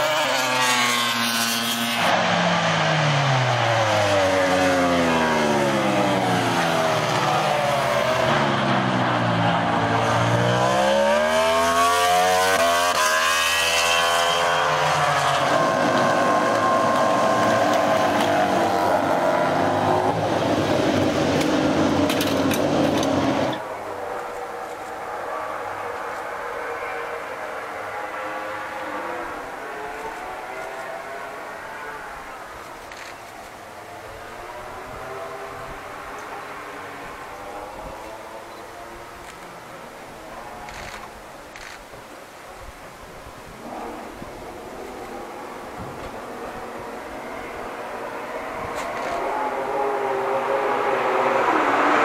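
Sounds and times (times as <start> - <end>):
racing motorbike engine revving: 0.0 - 32.7, 43.5 - 52.0.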